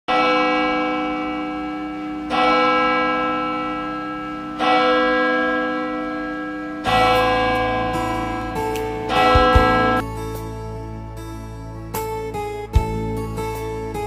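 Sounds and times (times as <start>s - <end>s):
church bell tolling: 0.1s - 10.1s.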